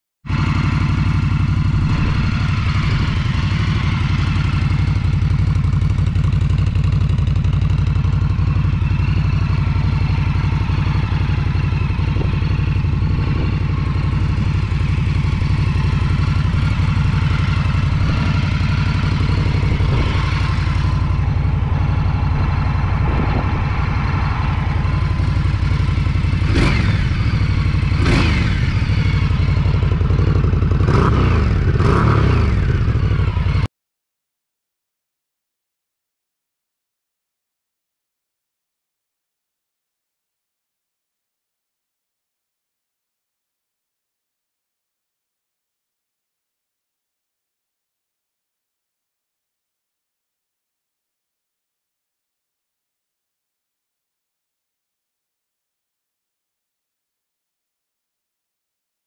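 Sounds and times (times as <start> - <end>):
motorcycle engine idling: 0.3 - 33.7
throttle blips revving engine: 8.5 - 33.7.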